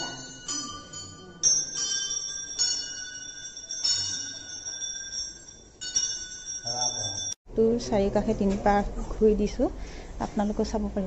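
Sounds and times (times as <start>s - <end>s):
temple bell ringing: 0.0s - 7.4s.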